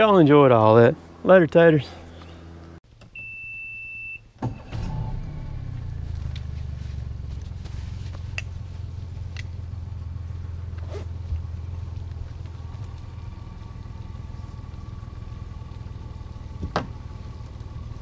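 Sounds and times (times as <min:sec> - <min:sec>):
warning beep: 0:03.2 - 0:04.2
outboard motor idling: 0:05.9 - 0:18.0.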